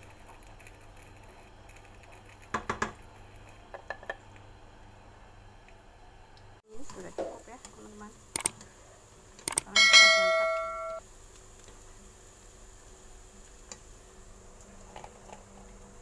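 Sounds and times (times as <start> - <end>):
bright bell chime: 9.8 - 11.0.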